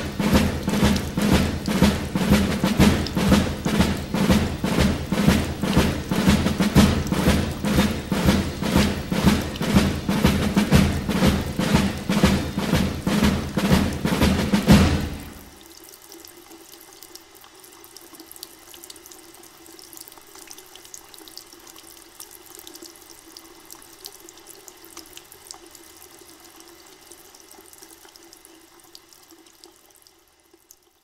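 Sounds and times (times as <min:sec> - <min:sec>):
drum-led music: 0:00.0 - 0:15.6
running water: 0:00.0 - 0:31.0
water drips and splashes: 0:00.0 - 0:31.0.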